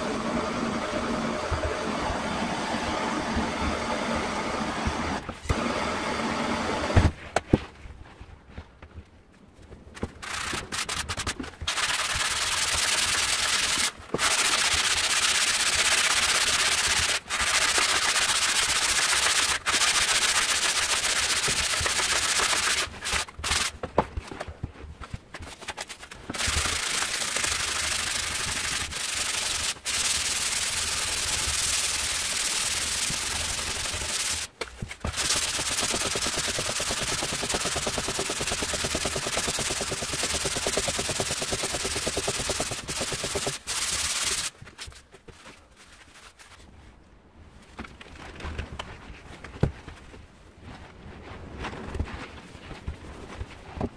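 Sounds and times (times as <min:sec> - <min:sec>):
sandpaper rasping on wood: 0:10.2 - 0:23.7, 0:25.6 - 0:34.5, 0:35.1 - 0:44.5.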